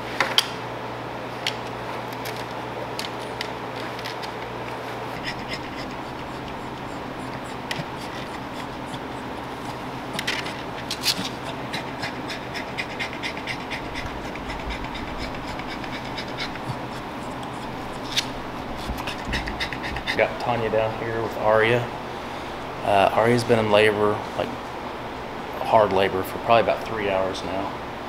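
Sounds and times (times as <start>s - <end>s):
background hum: 0.0s - 28.0s
claws scratching on towels and wood: 5.0s - 20.2s.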